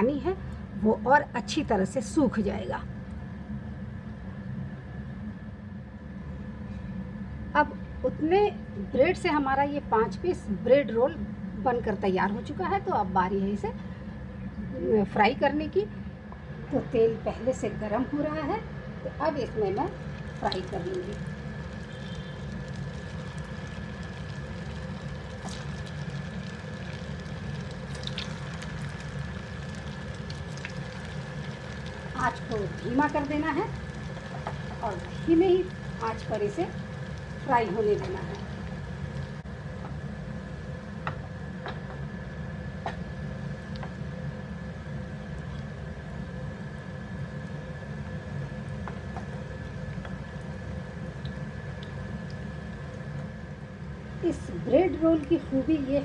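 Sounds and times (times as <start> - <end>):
low hum: 0.0 - 56.0
oil sizzling and bubbling: 19.3 - 56.0
sharp crackles in oil: 19.8 - 39.4.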